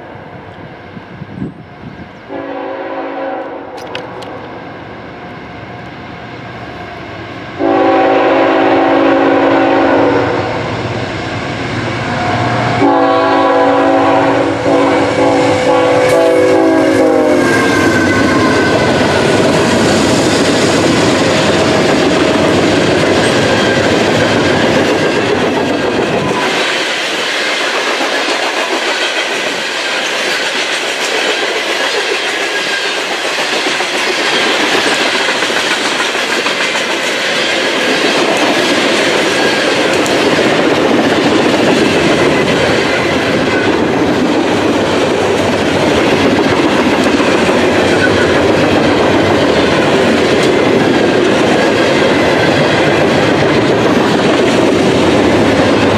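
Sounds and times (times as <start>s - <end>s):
locomotive air horn: 2.3s - 3.9s, 7.6s - 10.7s, 12.1s - 18.8s
locomotive engine passing: 3.7s - 55.9s
train wheels clacking on rails: 11.5s - 55.9s.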